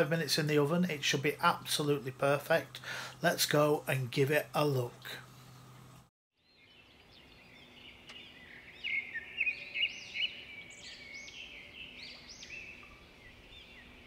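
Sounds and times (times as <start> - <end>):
faint steady hum: 0.0 - 6.1
small birds chirping: 6.4 - 14.0.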